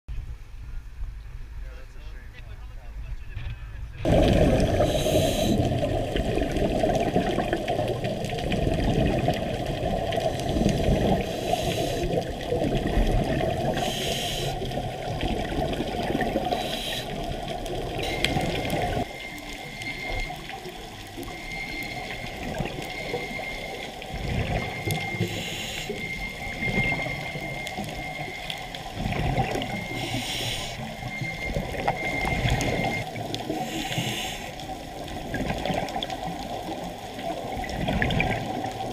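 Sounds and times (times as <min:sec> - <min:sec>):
muffled underwater water rush: 0:00.1 - 0:38.9
thin high whine: 0:01.7 - 0:34.7
diver exhaling bubbles: 0:04.0 - 0:19.1, 0:21.9 - 0:27.4, 0:28.8 - 0:38.9.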